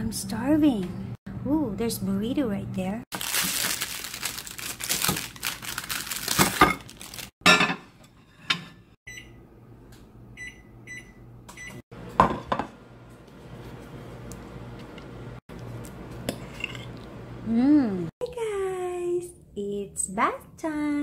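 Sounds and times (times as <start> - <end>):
plastic wrapper crinkling: 3.1 - 7.3
microwave keypad beeps: 9.1 - 9.4, 10.4 - 11.8.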